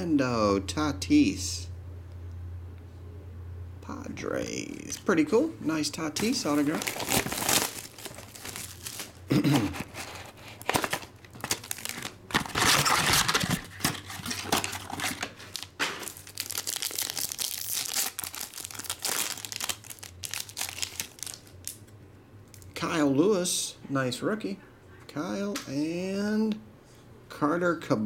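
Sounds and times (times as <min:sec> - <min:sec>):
plastic wrapper crinkling and tearing: 0:06.2 - 0:21.9.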